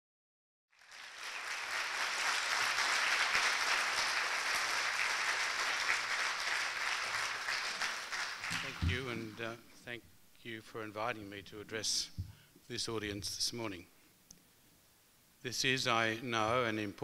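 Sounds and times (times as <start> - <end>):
audience applauding: 0.7 - 9.2.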